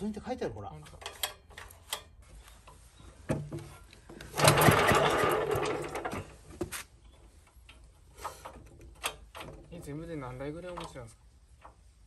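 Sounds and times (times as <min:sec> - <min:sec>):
starter rope pull: 0:04.1 - 0:06.4
small engine clattering over: 0:04.2 - 0:06.4.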